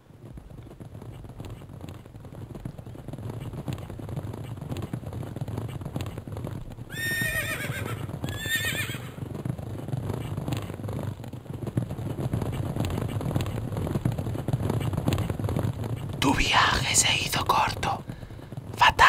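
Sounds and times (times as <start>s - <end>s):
horse whinnying: 6.9s - 9.2s.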